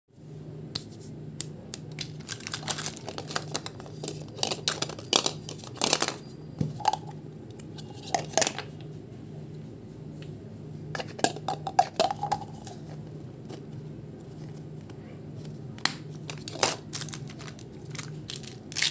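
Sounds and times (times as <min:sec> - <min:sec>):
steady low hum: 0:00.2 - 0:18.9.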